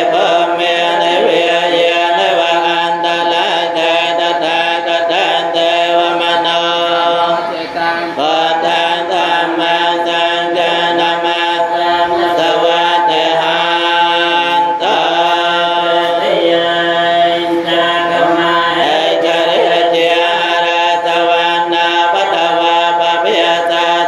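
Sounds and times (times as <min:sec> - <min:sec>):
voices chanting in unison: 0:00.0 - 0:24.0.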